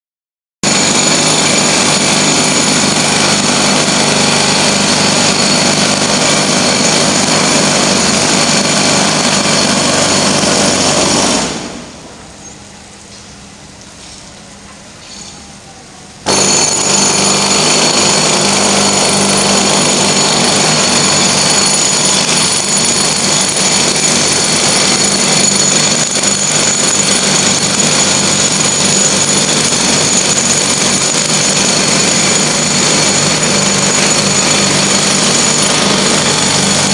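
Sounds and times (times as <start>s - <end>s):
loud machine noise: 0.6s - 14.2s, 15.0s - 36.9s.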